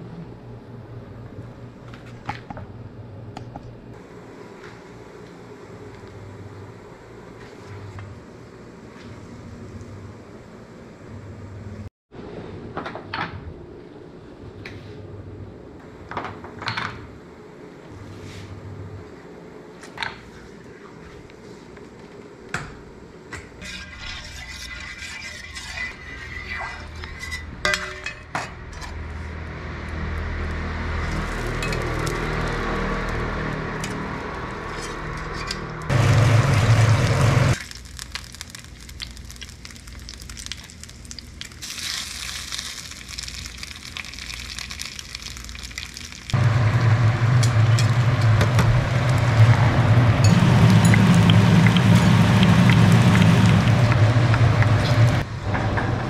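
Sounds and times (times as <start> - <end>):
metal spatula scraping griddle pan: 23.6 - 29.0
electric fan humming: 29.4 - 55.6.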